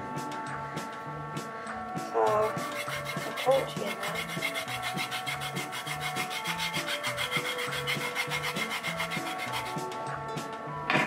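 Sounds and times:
lemon peel rubbed on grater: 0:02.3 - 0:09.8.

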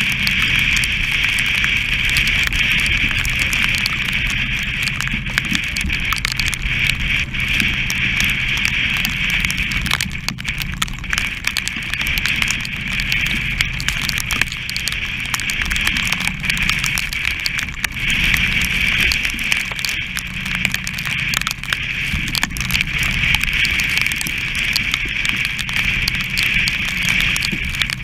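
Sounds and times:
rushing sea: 0:00.0 - 0:28.0
sail flapping: 0:00.0 - 0:28.0
strong wind: 0:00.0 - 0:28.0.

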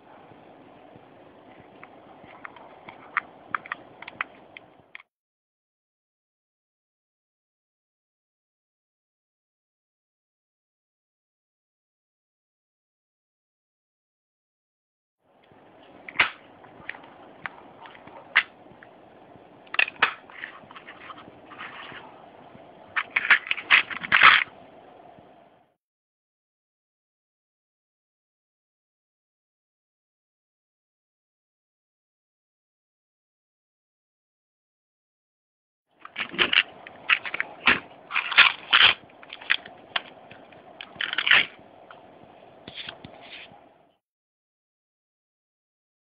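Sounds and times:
plastic clacking: 0:16.0 - 0:18.9, 0:19.6 - 0:22.1, 0:22.9 - 0:24.6, 0:36.0 - 0:42.0
plastic boxes clicking and rattling: 0:36.0 - 0:41.5.

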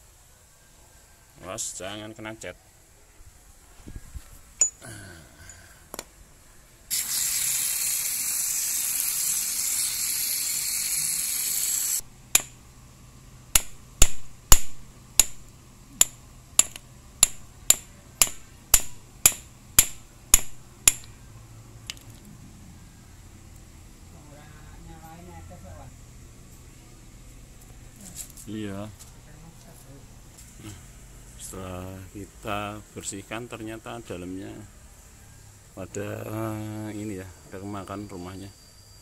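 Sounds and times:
spray hiss: 0:06.9 - 0:12.0
metal knocks on hammer head: 0:16.0 - 0:21.1.

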